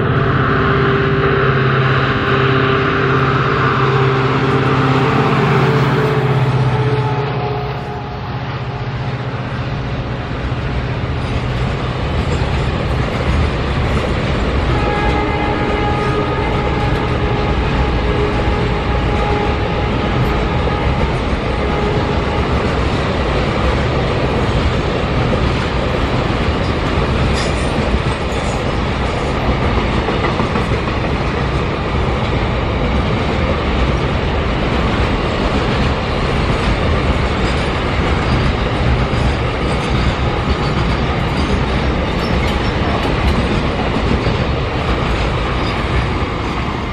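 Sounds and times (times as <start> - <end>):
steady ringing tone: 0.0 - 6.6
train wheels rumbling on rails: 0.0 - 46.9.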